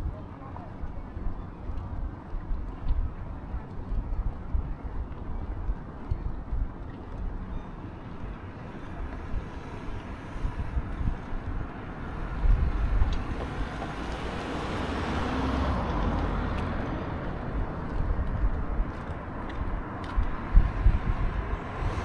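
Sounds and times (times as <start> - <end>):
wind rumble on microphone: 0.0 - 22.0
car passing: 11.7 - 22.0.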